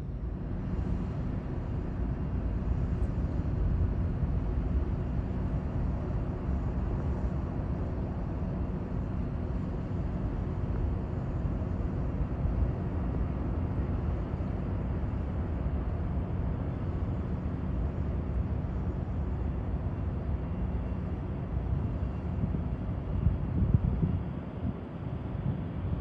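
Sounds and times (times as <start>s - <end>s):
jet engine rumble: 0.0s - 26.0s
wind buffeting microphone: 22.2s - 26.0s.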